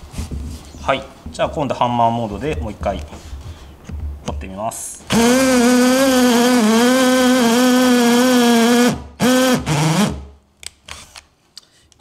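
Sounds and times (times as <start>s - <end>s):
cordless drill boring into wood: 5.1s - 10.3s.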